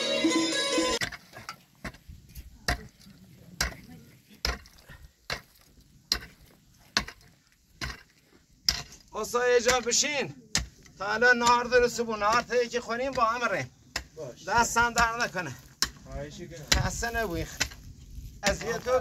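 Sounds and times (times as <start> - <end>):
music: 0.0 - 1.0
pickaxe striking soil and stones: 1.0 - 3.0, 4.4 - 19.0.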